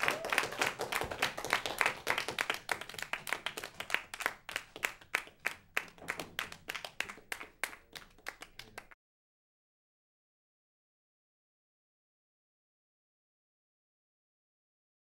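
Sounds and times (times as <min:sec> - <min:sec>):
audience clapping: 0:00.0 - 0:09.0.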